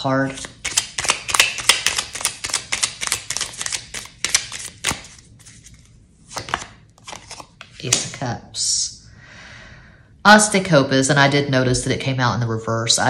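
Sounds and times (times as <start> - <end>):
cards being shuffled: 0.2 - 8.2.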